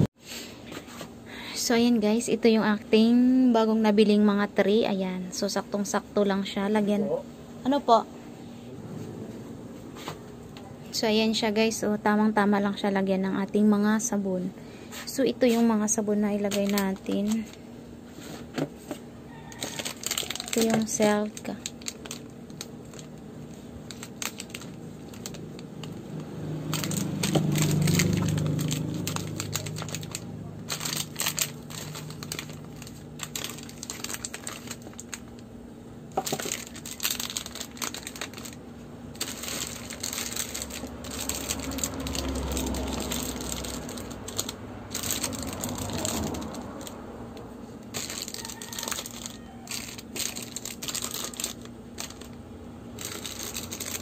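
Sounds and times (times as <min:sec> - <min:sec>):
plastic wrapper crinkling: 0:15.5 - 0:17.6, 0:19.3 - 0:35.5, 0:36.1 - 0:47.0, 0:47.8 - 0:54.0.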